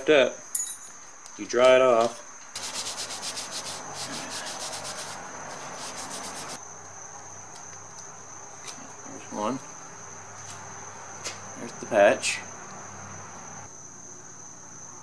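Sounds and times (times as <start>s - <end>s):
paper towel scrubbing rubber: 2.6s - 6.6s.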